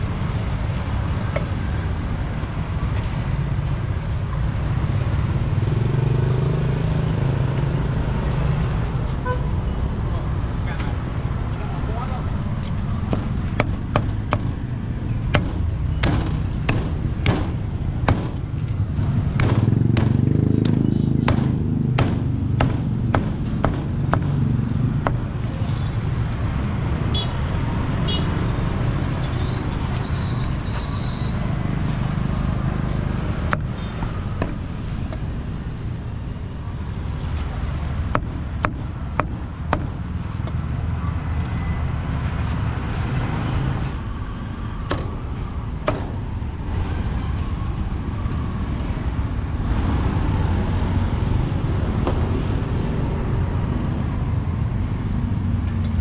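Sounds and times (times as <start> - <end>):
road traffic rumble: 0.0 - 56.0
cleaver chopping on wooden block: 13.1 - 14.6, 15.3 - 18.4, 19.4 - 24.4, 38.1 - 40.6.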